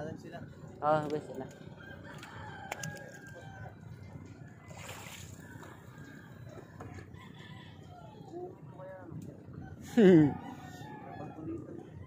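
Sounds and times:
water sloshing against boat: 4.0s - 7.1s
paddle stroke splash: 4.7s - 5.4s.

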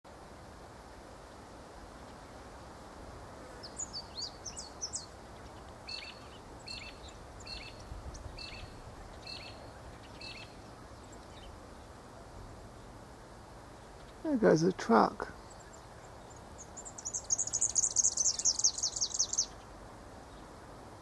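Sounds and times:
low background noise: 0.1s - 21.0s
bird chirping: 3.6s - 11.6s, 13.8s - 19.7s.

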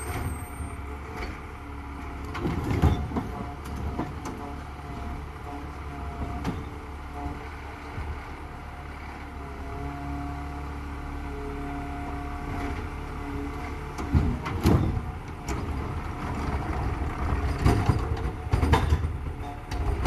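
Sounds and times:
metal clanks and knocks: 17.4s - 20.0s.

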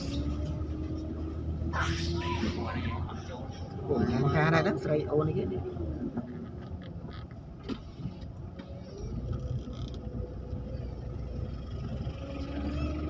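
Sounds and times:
car engine: 0.0s - 13.0s
road noise inside car: 0.0s - 13.0s.

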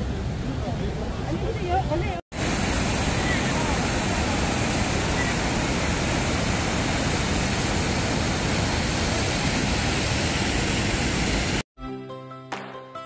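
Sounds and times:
water rushing over weir: 1.4s - 11.6s.

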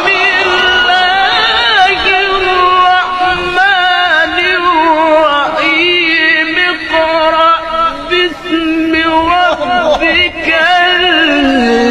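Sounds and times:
person reciting melodically: 0.0s - 11.9s.

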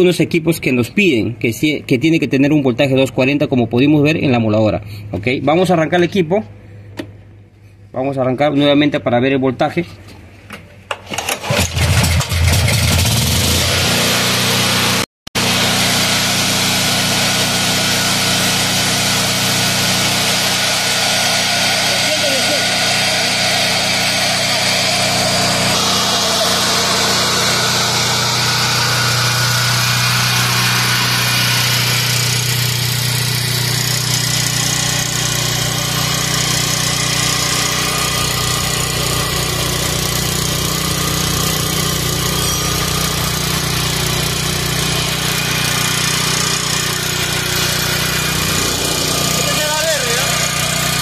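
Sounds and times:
generator engine running: 11.1s - 51.0s.

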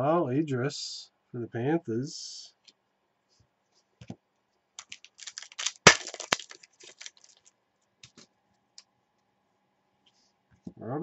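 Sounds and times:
trading cards rustling and clicking: 4.8s - 8.2s.

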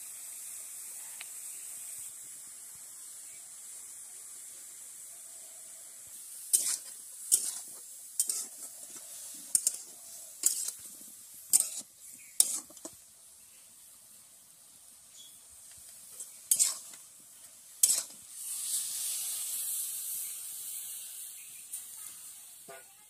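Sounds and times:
vegetables sizzling in pan: 0.0s - 23.0s
spatula scraping metal pan: 6.5s - 13.0s, 16.1s - 17.0s, 17.8s - 18.2s.

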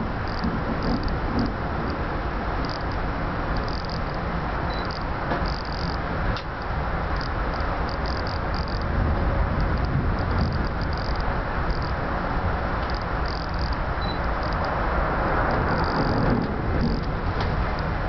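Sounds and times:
train coach rumbling on rails: 0.0s - 18.0s
short high squeaks: 3.7s - 6.0s, 12.9s - 14.6s.

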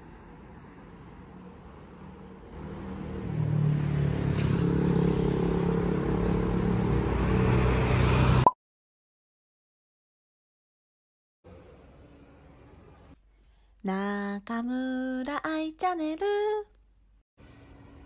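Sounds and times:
street traffic: 0.0s - 8.5s.

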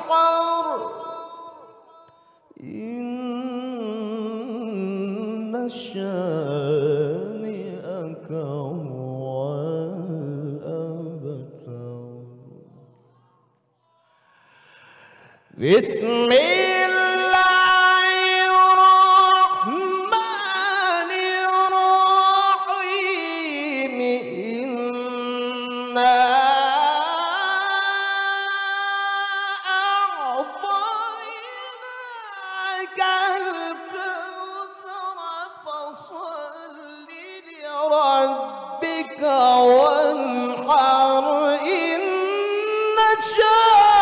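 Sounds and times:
man reciting melodically: 0.0s - 13.0s, 15.0s - 44.0s.

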